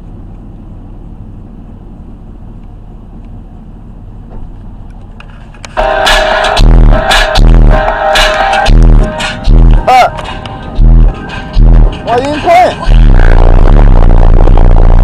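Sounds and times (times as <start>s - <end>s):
truck idling: 0.0s - 15.0s
loud bass-heavy music from stereo: 5.3s - 15.0s.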